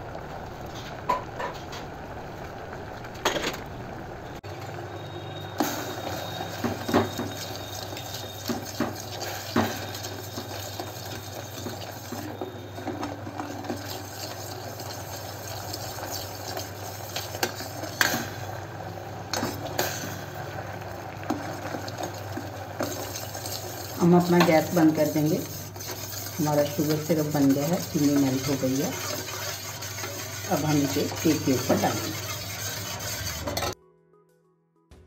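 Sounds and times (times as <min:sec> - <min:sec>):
syrup boiling in a saucepan: 0:04.2 - 0:33.8.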